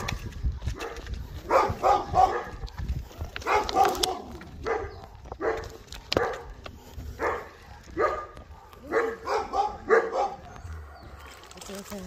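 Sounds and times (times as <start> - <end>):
dogs barking: 0.0 - 11.6.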